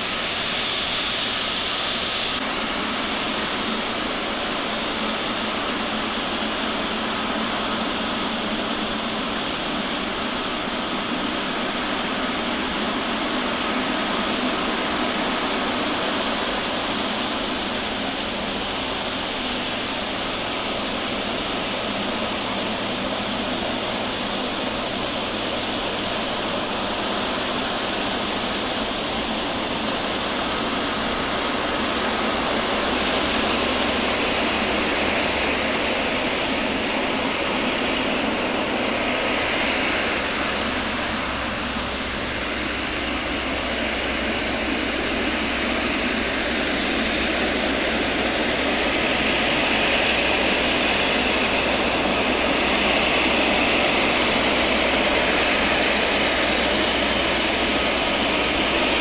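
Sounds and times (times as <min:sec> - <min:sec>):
jet engines roaring: 0:00.0 - 0:59.0.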